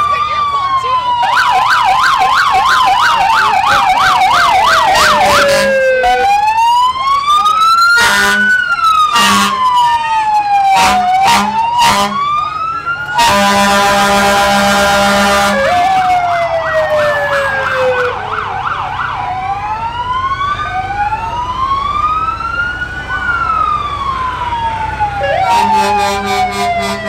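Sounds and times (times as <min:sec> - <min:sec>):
siren yelping rapidly: 0:00.0 - 0:13.7, 0:15.2 - 0:27.0
siren wailing: 0:00.0 - 0:27.0
deep horn blasts: 0:10.8 - 0:12.2, 0:13.2 - 0:15.8, 0:25.2 - 0:27.0.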